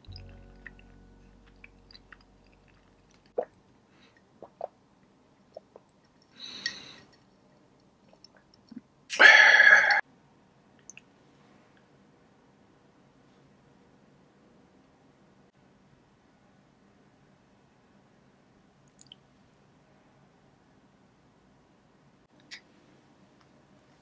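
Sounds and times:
mouth clicks and smacks: 4.4 - 4.8, 5.4 - 9.4, 18.9 - 19.2.

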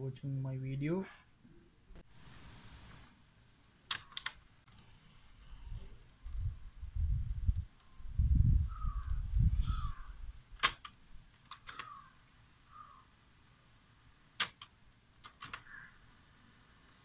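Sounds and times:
cassette deck buttons clicking: 10.6 - 12.0.

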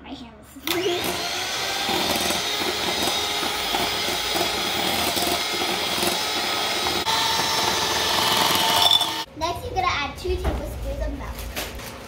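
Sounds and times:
electric mixer whirring: 0.6 - 9.3.

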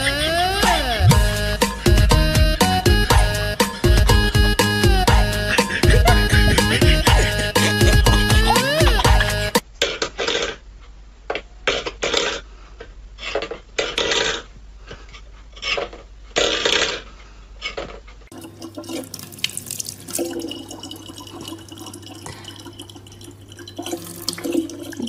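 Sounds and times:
tap water running into bottle: 18.3 - 25.0.

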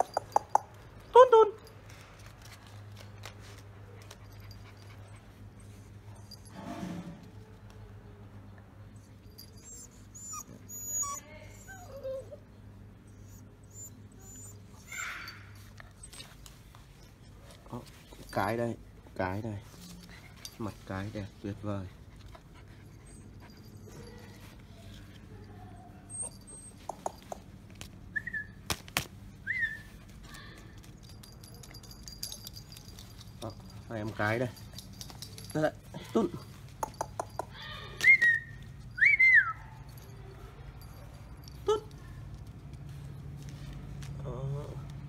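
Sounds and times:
puppies whimpering and whining: 8.9 - 18.3, 22.0 - 27.4, 37.8 - 40.2.

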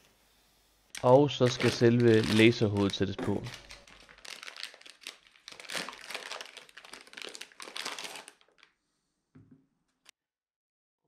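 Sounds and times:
plastic bag crinkling: 1.0 - 8.8.

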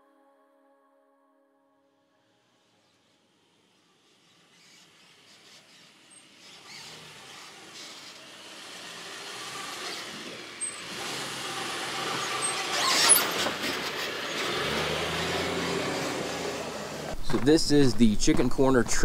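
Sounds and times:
engine at slow crawl: 3.0 - 18.1.

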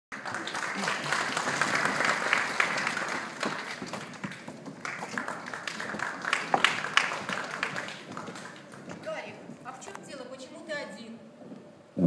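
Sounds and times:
audience applauding: 0.1 - 9.0.

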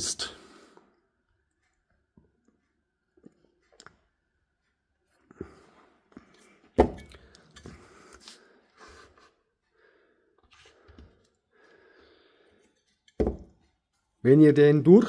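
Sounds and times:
object knocking on workbench: 13.2 - 13.5.

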